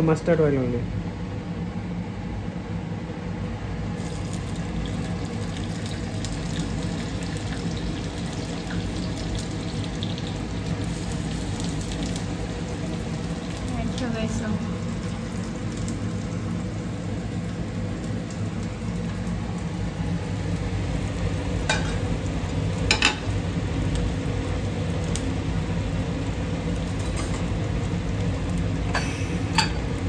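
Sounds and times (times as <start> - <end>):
steady low hum: 0.0 - 30.0
egg sizzling in a pan: 4.0 - 30.0.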